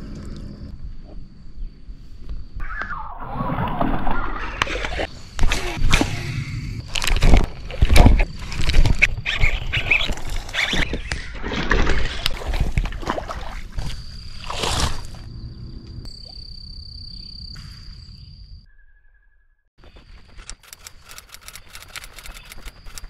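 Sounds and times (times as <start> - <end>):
water splashing: 11.3 - 15.3.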